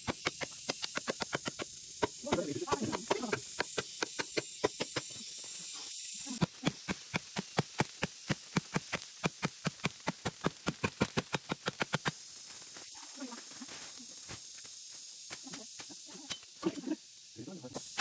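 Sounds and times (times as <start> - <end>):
blade chopping tree roots: 0.0 - 5.1, 6.4 - 12.2
steady hiss: 0.0 - 18.0.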